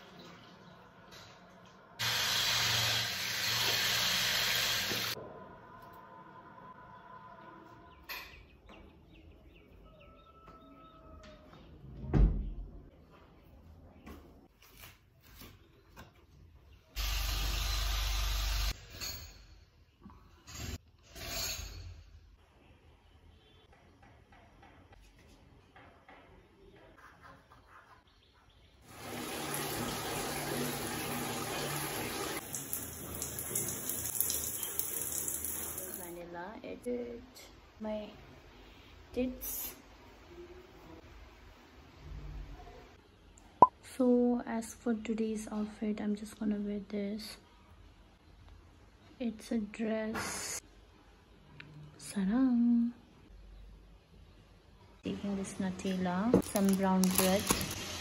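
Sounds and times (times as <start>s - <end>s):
shower head spraying water: 2.0s - 5.2s, 29.0s - 36.1s.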